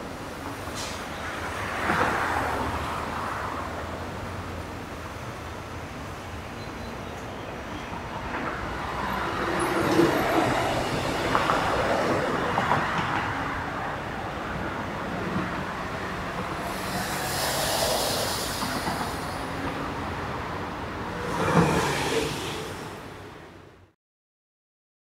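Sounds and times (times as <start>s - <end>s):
train wheels rumbling on rail: 0.0s - 6.2s, 7.1s - 23.6s
train clicks: 16.2s - 19.8s
bright hiss: 16.6s - 20.2s.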